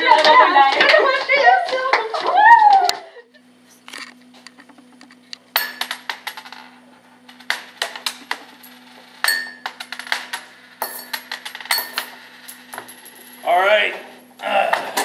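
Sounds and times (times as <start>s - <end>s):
steady low hum: 0.0s - 15.0s
coins clinking on table: 5.6s - 6.7s, 7.4s - 13.4s.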